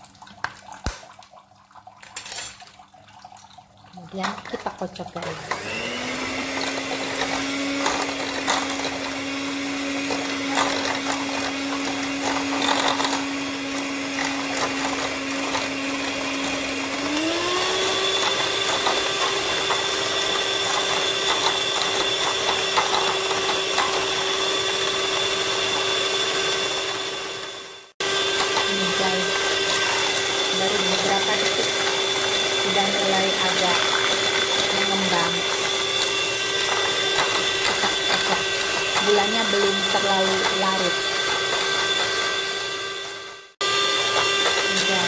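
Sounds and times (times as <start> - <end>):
electric hand mixer running: 4.1 - 45.0.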